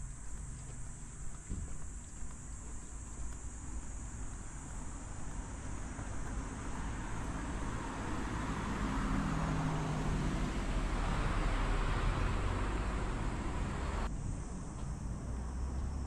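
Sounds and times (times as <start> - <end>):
car driving past: 4.3 - 14.2.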